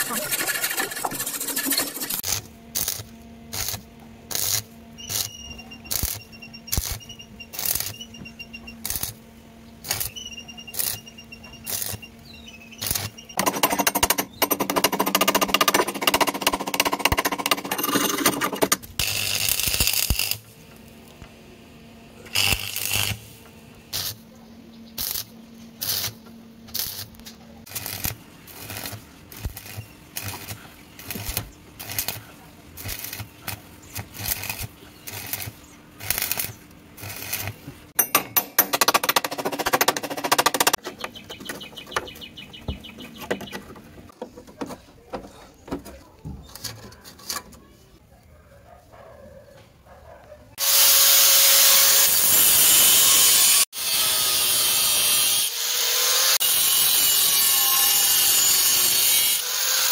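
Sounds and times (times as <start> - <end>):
arc welding crackling: 0.0 - 8.1, 8.8 - 9.2, 9.8 - 12.1, 12.7 - 13.3, 18.8 - 21.0, 22.3 - 24.2, 25.0 - 37.7
sharp knocks chipping weld: 12.8 - 20.5, 27.7 - 32.2, 32.8 - 45.8.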